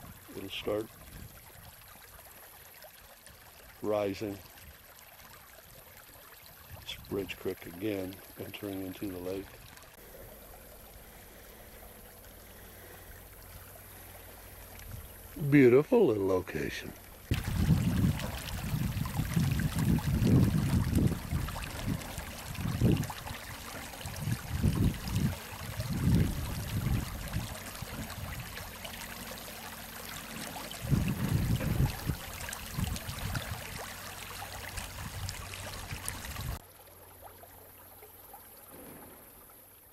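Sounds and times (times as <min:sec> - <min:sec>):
low rumbling water surges: 0:00.0 - 0:39.9
running water rushing: 0:00.0 - 0:39.9.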